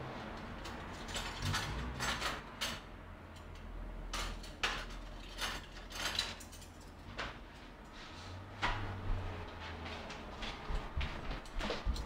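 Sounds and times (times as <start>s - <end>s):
kitchen items scraping and clattering: 0.0s - 2.8s, 4.2s - 8.5s.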